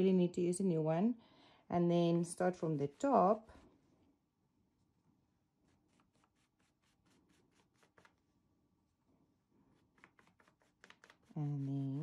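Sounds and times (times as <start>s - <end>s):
rapid brush strokes: 2.3s - 3.8s, 5.6s - 8.4s, 9.6s - 12.0s.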